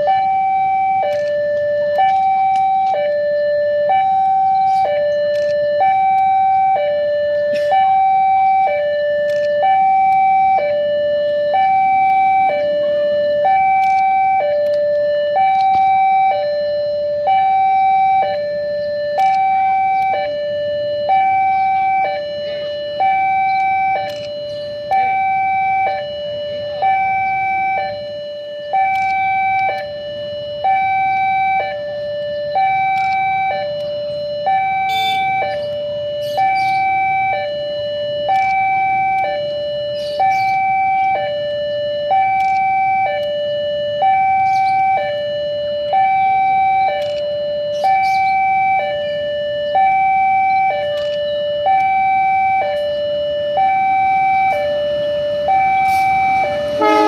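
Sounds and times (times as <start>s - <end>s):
level-crossing two-tone alarm: 0.0s - 57.0s.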